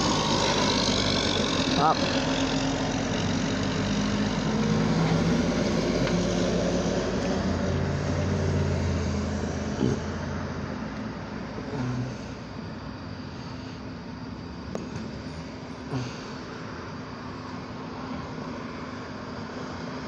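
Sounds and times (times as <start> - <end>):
trucks driving past: 0.0 - 20.0.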